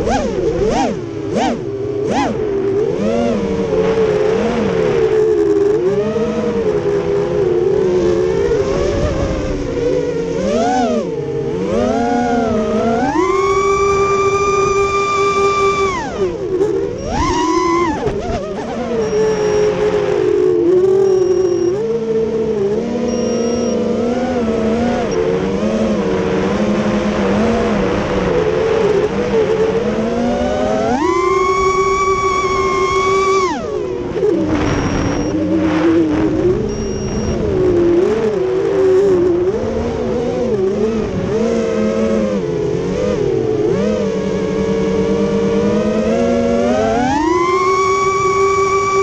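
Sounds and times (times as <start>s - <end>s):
quadcopter motors whining: 8.3s - 25.9s, 30.3s - 39.2s.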